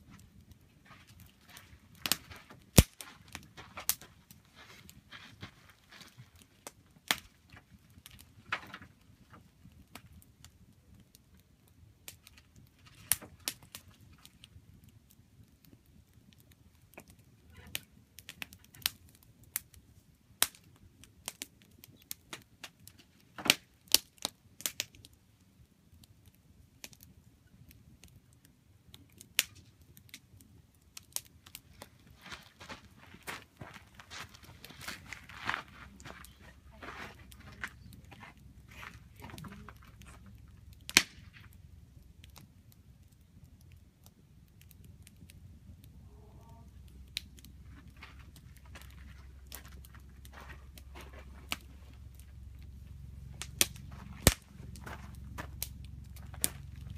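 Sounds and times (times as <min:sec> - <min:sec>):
campfire crackling and popping: 0:00.0 - 0:56.9
faint low rumble: 0:24.4 - 0:56.9.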